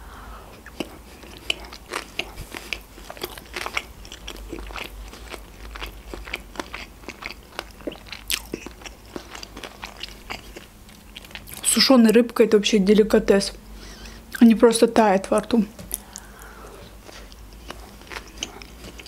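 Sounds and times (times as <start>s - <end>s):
close chewing with mouth clicks: 0.5s - 12.2s, 15.8s - 19.0s.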